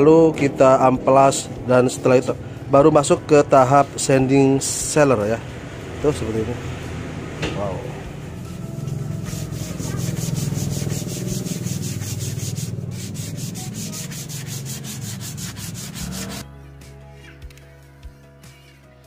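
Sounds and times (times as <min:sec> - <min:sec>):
sandpaper rubbing on wood: 0:08.5 - 0:16.4.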